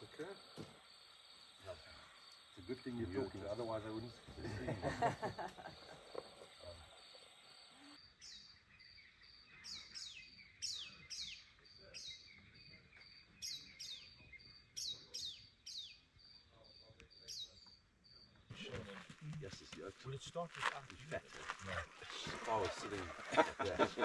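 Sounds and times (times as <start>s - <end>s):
insect chirping: 0.0s - 19.6s.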